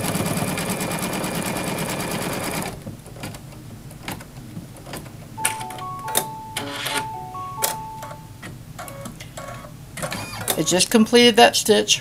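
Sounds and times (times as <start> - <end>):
embroidery machine stitching: 0.0 - 2.8, 9.4 - 10.7.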